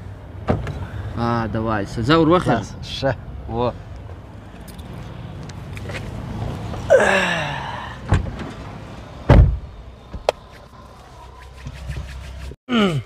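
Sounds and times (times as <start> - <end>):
vehicle passing: 0.8 - 12.4
car door slamming: 8.1 - 8.6, 9.3 - 10.4.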